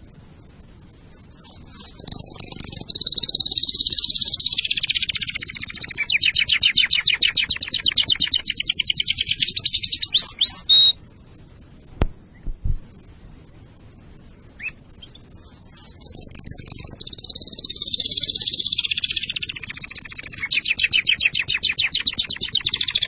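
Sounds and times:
canary singing: 1.1 - 11.0, 14.5 - 23.0.

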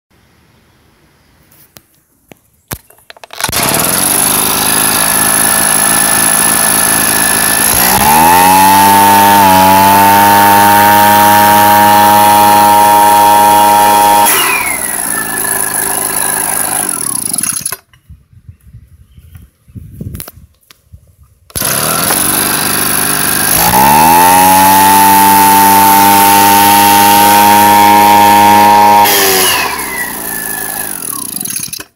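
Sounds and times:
leaf blower engine revving: 3.4 - 17.9, 21.5 - 31.9.

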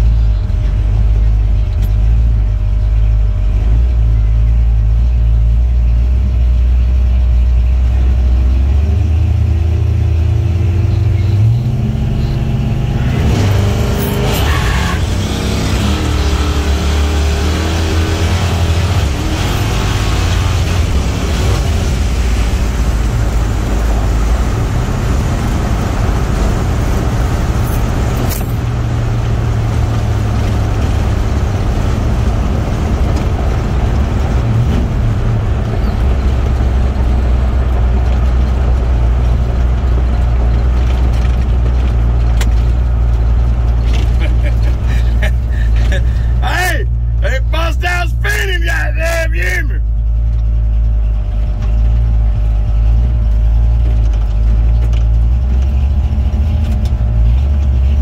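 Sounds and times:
truck engine drone: 0.0 - 58.0.

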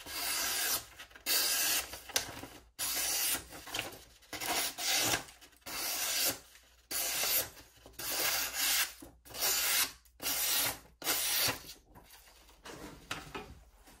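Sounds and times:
paper rustling: 0.8 - 2.7, 3.4 - 5.6.

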